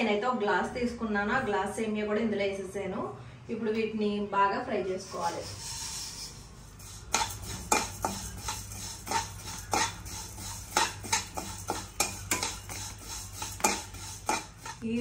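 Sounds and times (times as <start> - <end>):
utensil scraping and clinking pan: 5.0 - 15.0
noodles frying in a pan: 5.6 - 15.0.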